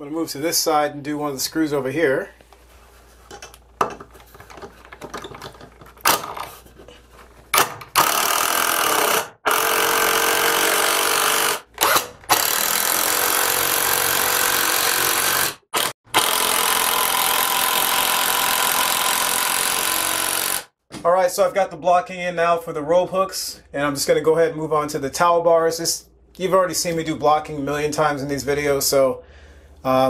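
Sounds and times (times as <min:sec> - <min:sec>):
impact driver driving screws: 0:07.5 - 0:20.7.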